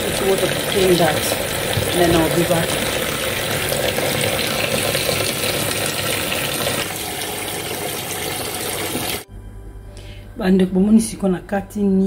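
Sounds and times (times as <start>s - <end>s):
tap water running into basin: 0.0s - 9.3s.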